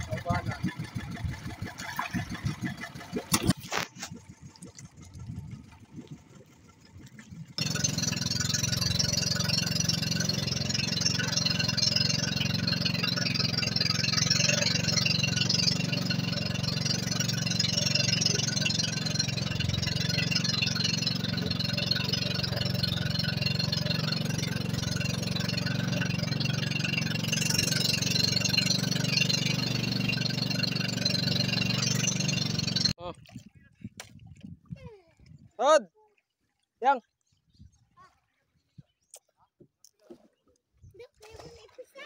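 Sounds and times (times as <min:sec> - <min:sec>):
boat engine droning: 0:00.0 - 0:33.0.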